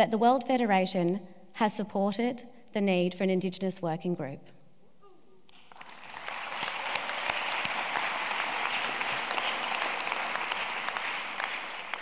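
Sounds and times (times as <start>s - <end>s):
audience applauding: 5.5s - 12.0s.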